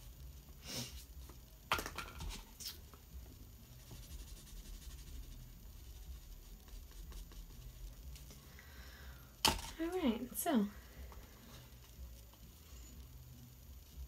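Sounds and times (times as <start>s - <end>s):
low steady hum: 0.0s - 14.0s
brush strokes on paper: 3.6s - 8.2s.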